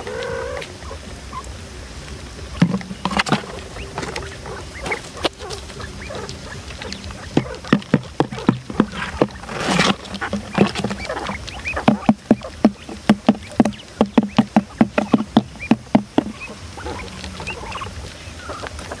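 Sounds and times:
quail chirping: 0.0s - 1.5s, 2.4s - 19.0s
rapid sharp tapping: 5.2s - 16.6s.

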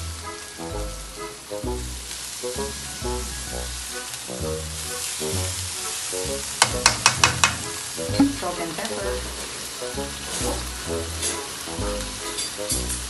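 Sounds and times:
food sizzling in a wok: 0.0s - 13.0s
spatula knocking on pan: 6.6s - 8.5s.

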